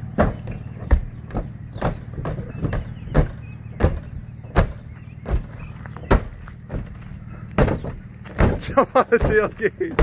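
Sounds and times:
steady low hum: 0.0 - 10.0
thumps on sheet-metal roof: 0.2 - 5.5, 7.6 - 10.0.

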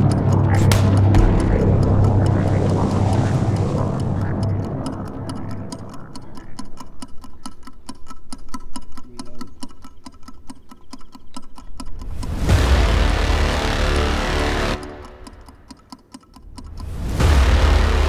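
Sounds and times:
low rumble: 0.0 - 7.3, 12.1 - 15.6, 16.5 - 18.0
fast mechanical ticking: 0.0 - 18.0.

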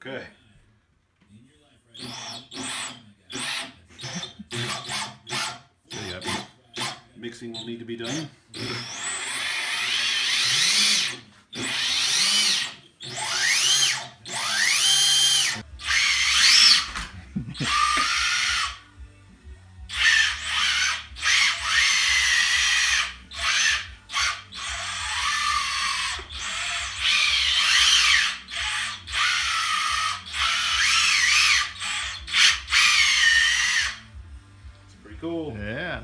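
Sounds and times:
electric drive motors whining: 8.6 - 18.8.

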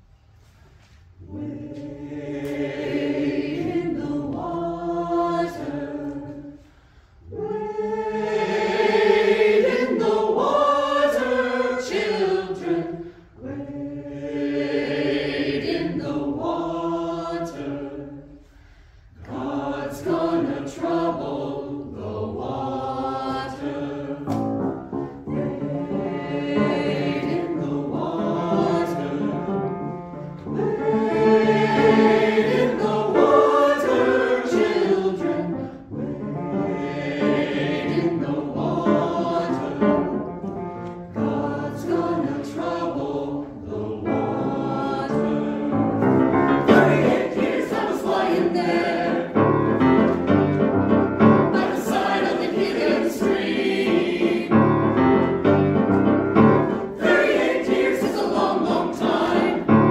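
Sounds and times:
church choir singing: 0.0 - 59.9
singers breathing: 6.5 - 7.3, 13.0 - 13.4, 18.3 - 19.2.

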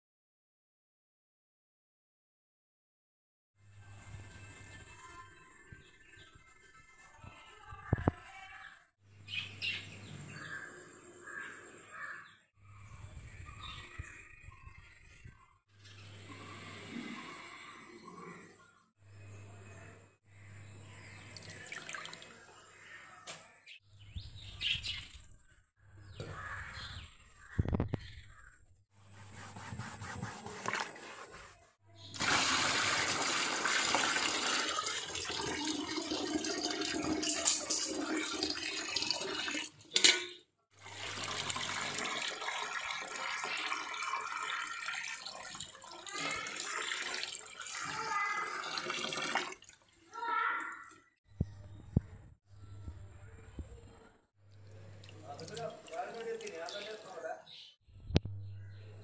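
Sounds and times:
water pouring into tub: 21.4 - 22.4, 32.1 - 39.8, 40.8 - 50.0, 55.0 - 57.2.

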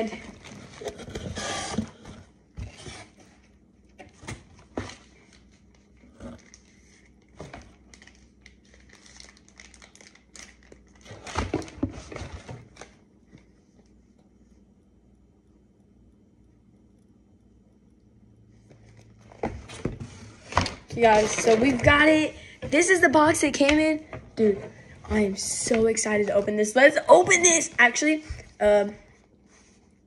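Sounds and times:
packaging crinkling and rustling: 4.0 - 13.0, 18.9 - 23.7.

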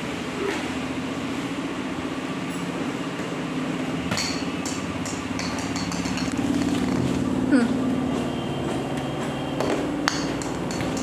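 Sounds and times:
bamboo trays knocking on tile floor: 4.1 - 7.1, 9.6 - 11.0.

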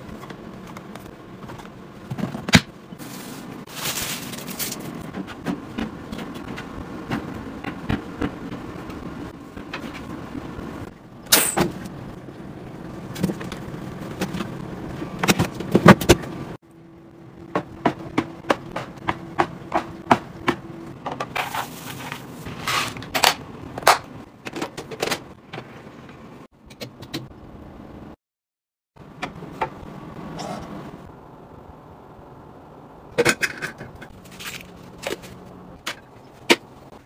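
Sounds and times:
plastic bins sliding and clacking: 0.1 - 10.2, 20.5 - 26.3, 33.2 - 36.7.

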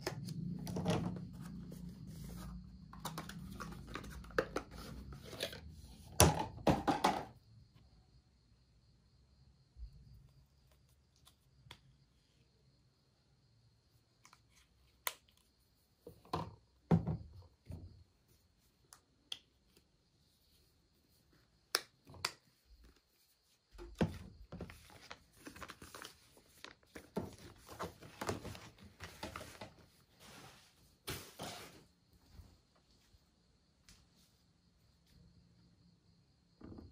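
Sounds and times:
plastic bottles clicking and knocking: 2.9 - 7.4, 26.6 - 29.7
packaging crinkling rustle: 24.7 - 29.6.

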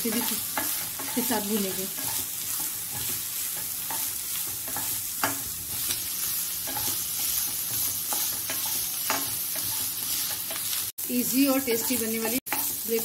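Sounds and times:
wooden spatula scraping a pan: 0.0 - 10.8
vegetables sizzling in a frying pan: 0.0 - 13.0.

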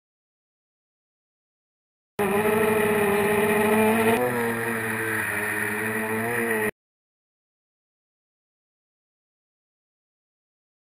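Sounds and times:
model airplane motor droning: 2.2 - 6.7.

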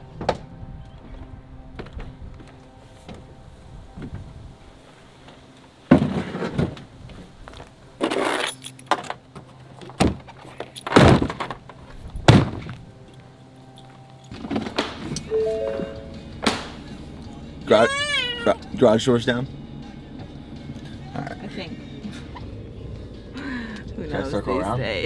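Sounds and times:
stroller frame clunking and rattling: 8.0 - 12.8.

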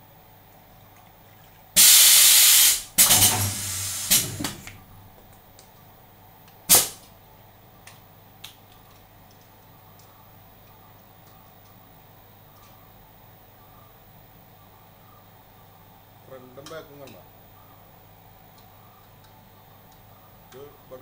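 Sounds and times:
sharp burst of air: 1.8 - 4.7, 6.7 - 7.0
compressed air hissing blasts: 1.8 - 4.8, 6.7 - 7.0
low machine hum: 2.9 - 6.4.

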